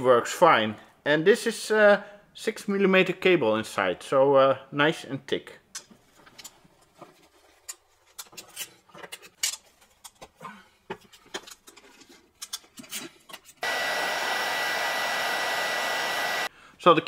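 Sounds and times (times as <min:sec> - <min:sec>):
hand tools clicking and rattling: 0:07.6 - 0:13.6
hot air gun blowing and whining: 0:13.6 - 0:16.5.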